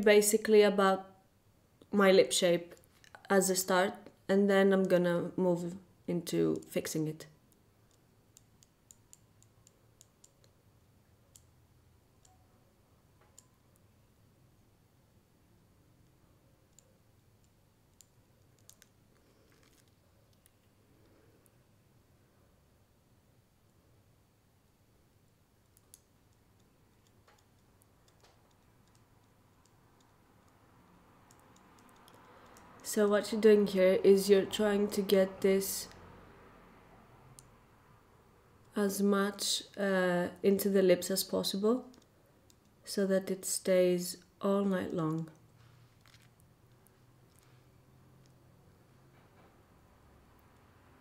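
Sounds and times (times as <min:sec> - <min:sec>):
faint small clicks: 0:07.5 - 0:10.6, 0:13.2 - 0:13.9, 0:16.0 - 0:21.6, 0:25.6 - 0:30.6, 0:31.2 - 0:32.9, 0:45.1 - 0:48.4.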